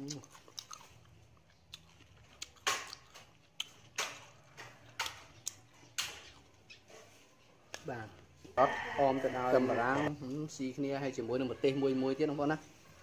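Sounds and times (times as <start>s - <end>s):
crisp crunches of eating: 0.0s - 8.2s.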